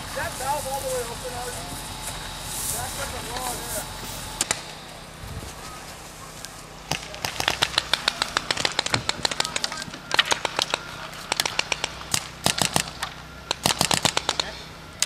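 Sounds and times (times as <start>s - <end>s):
paintball markers firing: 6.9s - 14.6s.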